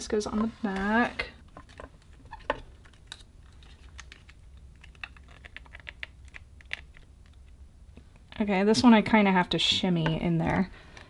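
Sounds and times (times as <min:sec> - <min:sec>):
resin pieces clicking and tapping: 0:03.9 - 0:07.4.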